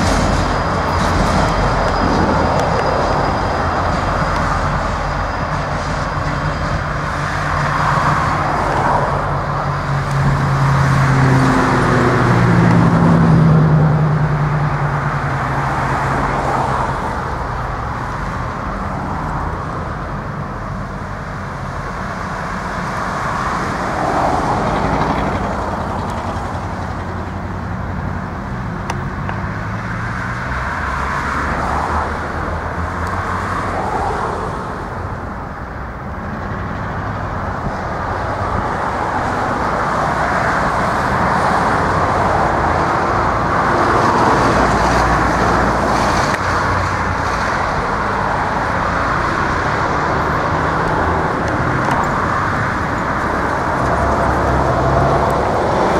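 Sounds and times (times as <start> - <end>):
diesel locomotive rumble: 0.0 - 55.9
road traffic passing: 0.0 - 55.9.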